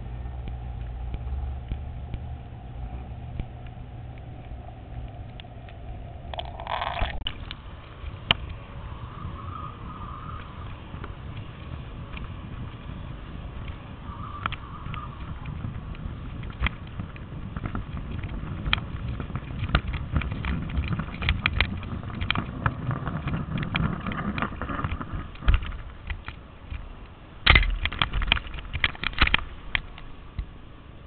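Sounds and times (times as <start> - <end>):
camera handling rumble: 3.3 - 8.6, 15.2 - 30.1.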